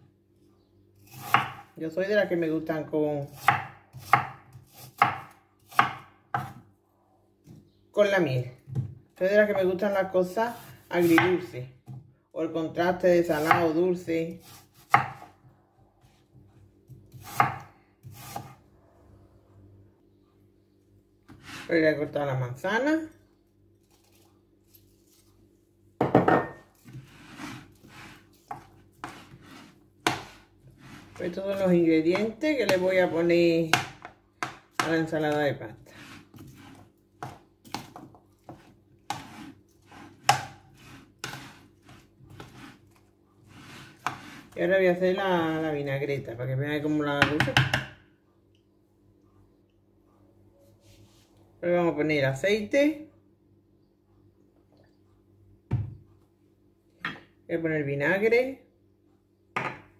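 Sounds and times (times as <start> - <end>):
knife slicing apple: 1.0 - 1.7, 3.3 - 6.6, 10.5 - 11.5, 13.3 - 15.3, 17.0 - 18.6, 26.8 - 35.0, 35.9 - 44.6
utensil clacking and scraping bowl: 35.8 - 44.6.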